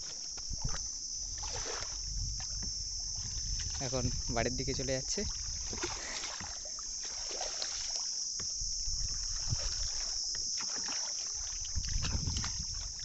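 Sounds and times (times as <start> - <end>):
water lapping around boat: 0.0 - 13.0.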